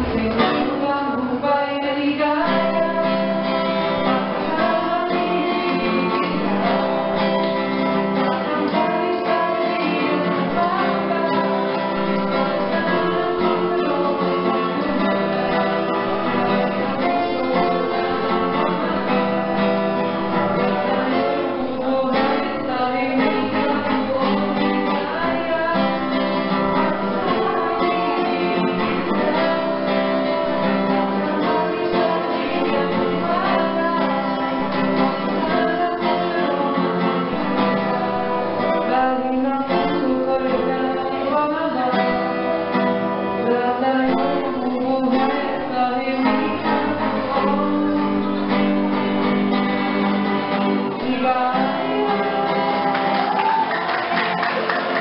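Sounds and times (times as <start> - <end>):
acoustic guitar: 0.0 - 55.0
man singing into a microphone: 8.1 - 42.6, 43.3 - 48.7, 50.8 - 53.7.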